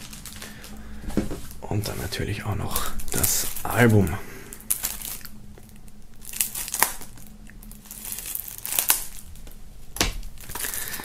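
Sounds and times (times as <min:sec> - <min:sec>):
plastic wrap crinkling: 0:00.0 - 0:11.0
knife slitting plastic wrap: 0:07.9 - 0:09.2.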